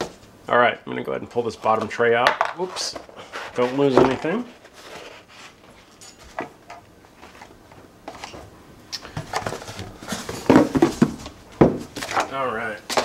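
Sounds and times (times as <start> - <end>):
rubbing and scraping: 2.6 - 5.9.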